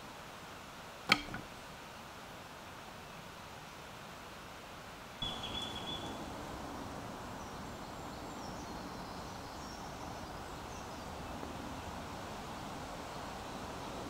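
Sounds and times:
outdoor background hiss: 0:00.0 - 0:14.0
faint high bird chirps: 0:05.2 - 0:06.3.

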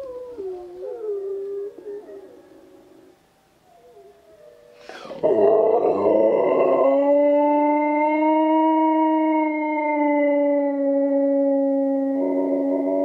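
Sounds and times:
wolves howling: 0:00.0 - 0:13.0
dog howling: 0:03.8 - 0:13.0.

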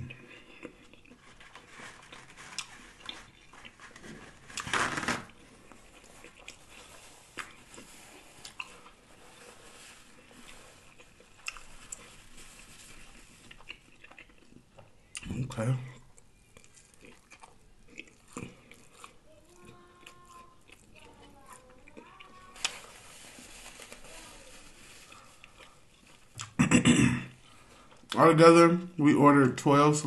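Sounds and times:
chewing with wet mouth sounds: 0:00.0 - 0:01.2, 0:05.3 - 0:09.0, 0:10.2 - 0:12.1, 0:13.2 - 0:22.4.

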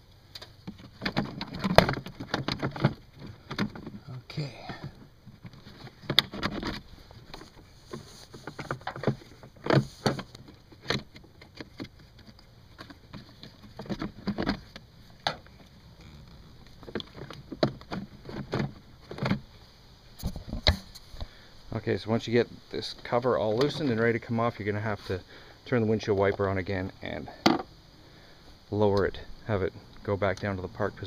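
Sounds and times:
plastic clicks and scrapes: 0:04.8 - 0:19.4.

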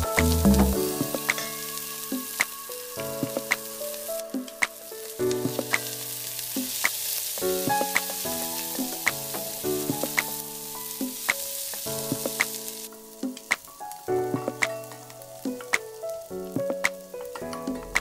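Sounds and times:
onions sizzling in hot oil: 0:00.2 - 0:04.2, 0:04.9 - 0:13.2.

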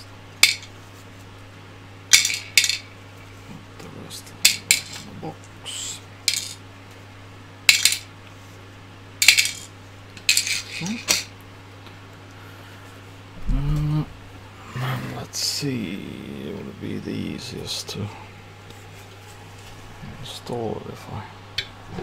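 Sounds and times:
small screws clinking: 0:06.3 - 0:06.6, 0:09.2 - 0:11.3.

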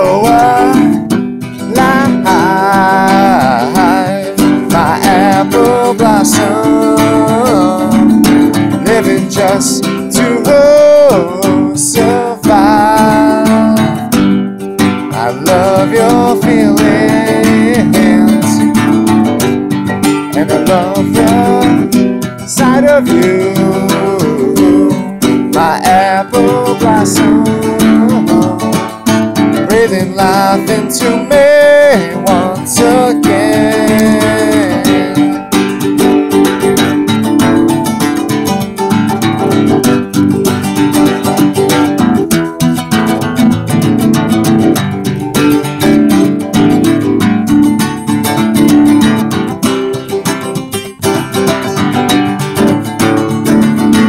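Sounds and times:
man singing: 0:00.0 - 0:42.2
acoustic guitar strumming: 0:00.0 - 0:54.0.

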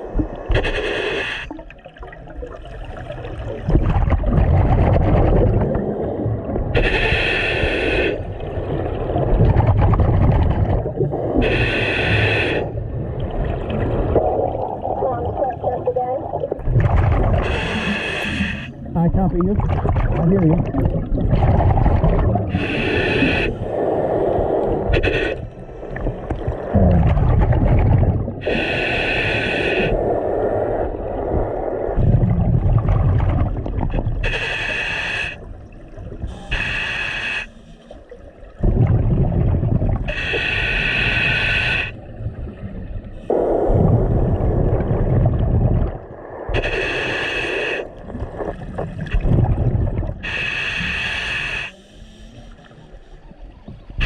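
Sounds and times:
regulator inhale hiss: 0:00.5 - 0:01.6, 0:06.8 - 0:08.4, 0:11.4 - 0:12.8, 0:17.4 - 0:18.9, 0:22.5 - 0:25.8, 0:28.4 - 0:30.8, 0:34.2 - 0:35.6, 0:36.2 - 0:38.2, 0:40.1 - 0:42.1, 0:46.5 - 0:48.0, 0:50.2 - 0:53.3
exhaled bubbles rushing: 0:01.5 - 0:06.8, 0:08.2 - 0:11.5, 0:12.6 - 0:28.6, 0:30.0 - 0:34.3, 0:38.1 - 0:40.2, 0:42.0 - 0:46.6, 0:47.9 - 0:50.3.

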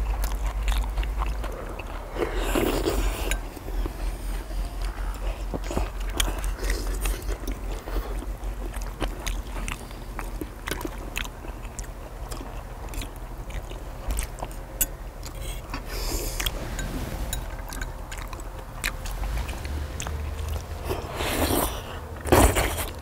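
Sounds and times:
people chewing food: 0:00.0 - 0:23.0.

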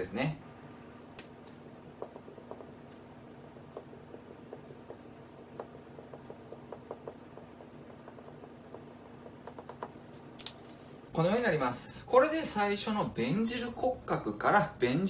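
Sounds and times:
low steady hum: 0:00.0 - 0:15.0
marker squeaking on whiteboard: 0:02.0 - 0:10.3.

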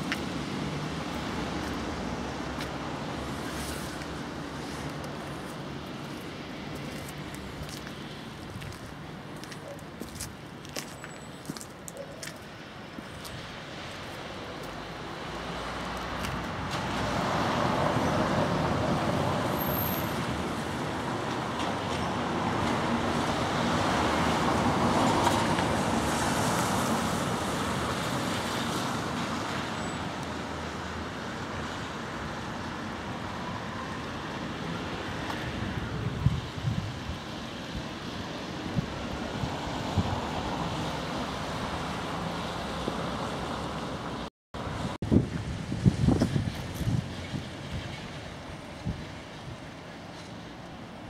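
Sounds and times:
passing road traffic: 0:00.0 - 0:51.0.

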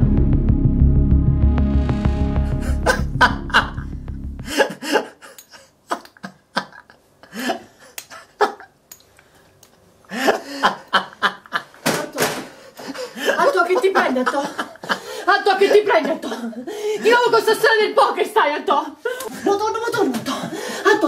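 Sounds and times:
low throbbing drone: 0:00.0 - 0:04.6
man laughing: 0:02.6 - 0:08.8, 0:10.1 - 0:11.8.

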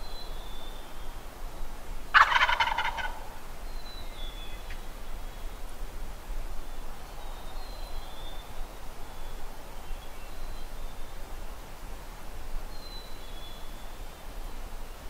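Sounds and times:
turkey gobbling: 0:02.1 - 0:03.3.

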